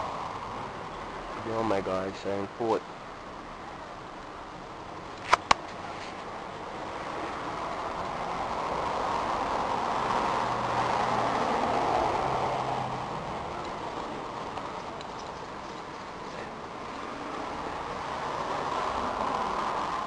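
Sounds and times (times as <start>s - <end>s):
sharp clicks: 5.1s - 5.8s
passing vehicle rushing: 5.4s - 20.0s.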